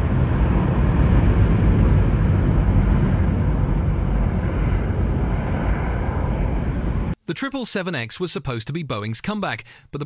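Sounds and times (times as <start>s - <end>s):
jet plane rumble: 0.0s - 7.2s.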